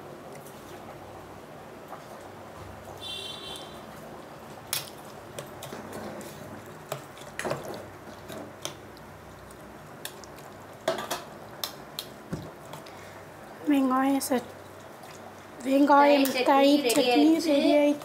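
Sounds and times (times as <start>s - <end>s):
wet squishing: 3.4s - 17.0s.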